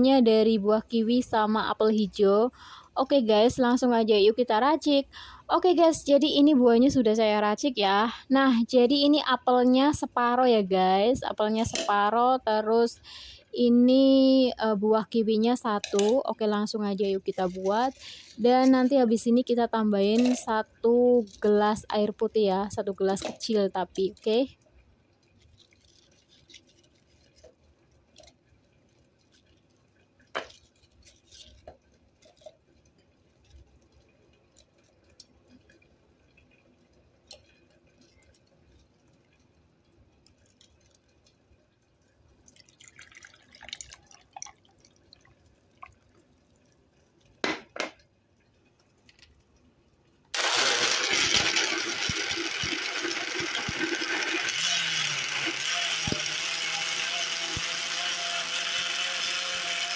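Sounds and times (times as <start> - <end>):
water pouring: 40.2 - 47.4, 50.4 - 58.0
electric blender running: 50.4 - 59.9.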